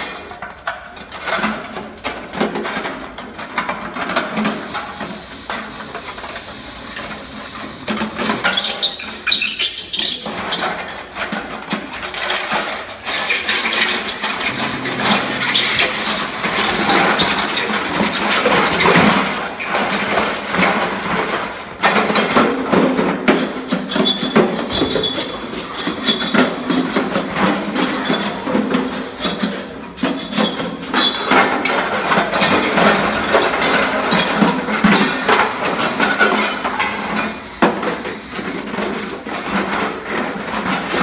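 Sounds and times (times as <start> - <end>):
thin high squeal: 4.3 - 10.9, 23.8 - 29.3, 36.1 - 41.0.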